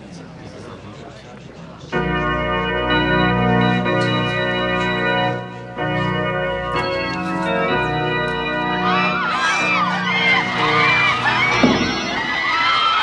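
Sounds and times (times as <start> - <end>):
church organ chords: 1.9 - 12.5.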